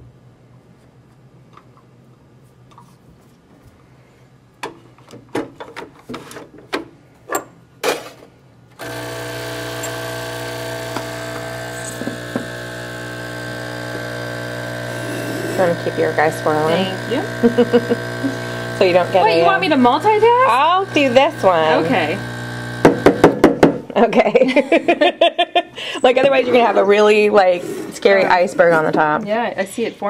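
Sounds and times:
portafilter clicks and knocks: 8.8 - 12.9, 22.8 - 23.8
espresso pump buzzing: 8.8 - 23.5.

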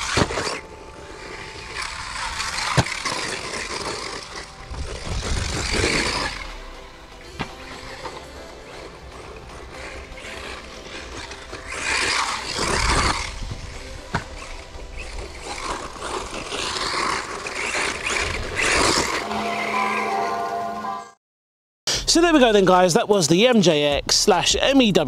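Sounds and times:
tyre and drivetrain noise: 0.0 - 19.7
rc car electric whine: 0.0 - 20.1.

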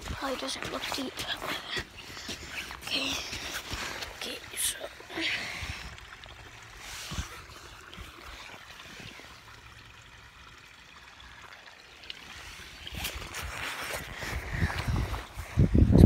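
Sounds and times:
creek water trickling: 0.0 - 16.0.

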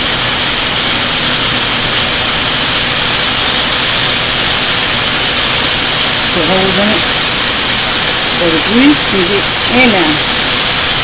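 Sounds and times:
chicken sizzling in hot grease: 0.0 - 11.0.

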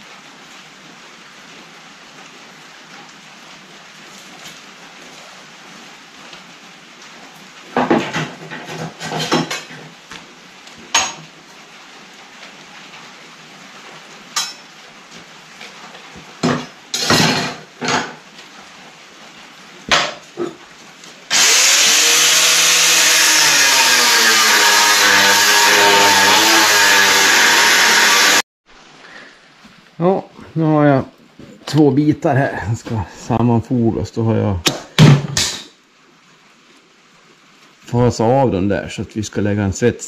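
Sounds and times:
angle grinder grinding steel: 21.3 - 28.4.

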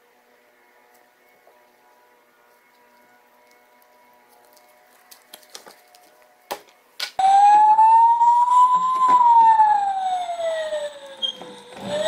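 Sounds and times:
toy electronic siren wailing: 7.2 - 12.0.

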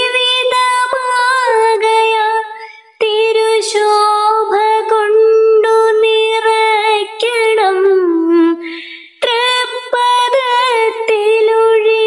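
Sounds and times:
person singing with vibrato: 0.0 - 12.0.

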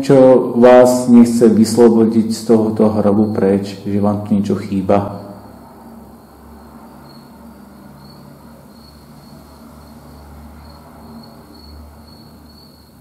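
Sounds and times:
faint high-pitched chirp: 2.8 - 3.8, 5.0 - 5.7.

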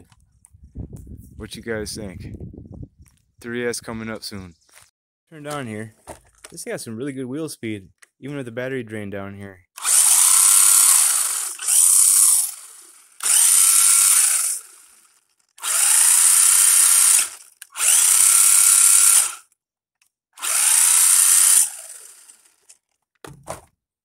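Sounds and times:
toy truck electric motor whining: 9.8 - 19.6, 20.4 - 23.0.

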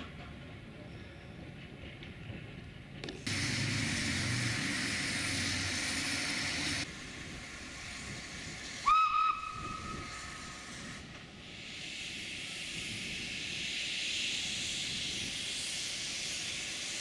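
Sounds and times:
steam locomotive hissing: 3.2 - 17.0
steam whistle: 8.8 - 10.2.

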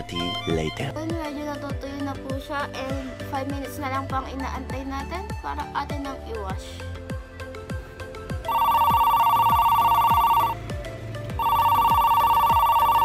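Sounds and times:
background music with steady beat: 0.0 - 13.0
old-style telephone ringing: 8.5 - 10.6, 11.4 - 13.0.

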